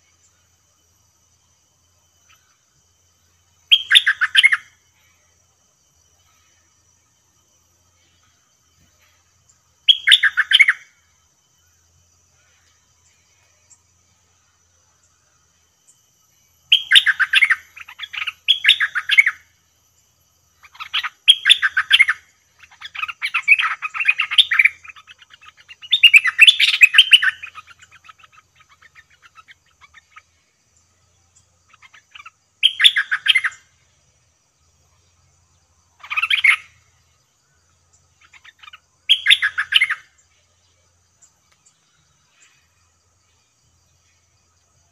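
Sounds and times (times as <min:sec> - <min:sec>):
bird chattering song: 0:03.4 - 0:05.2, 0:07.8 - 0:16.0, 0:16.6 - 0:19.6, 0:20.5 - 0:33.9, 0:34.8 - 0:44.9.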